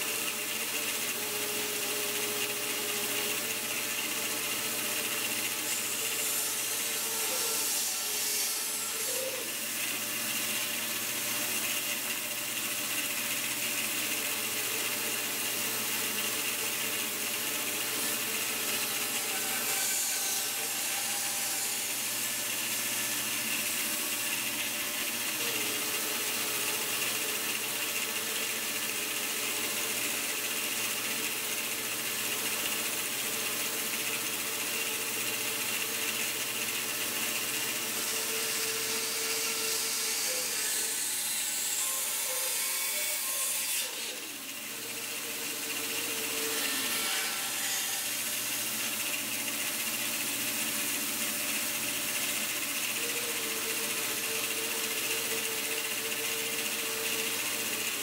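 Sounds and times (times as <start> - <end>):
bandsaw cutting wood: 0.0 - 58.0.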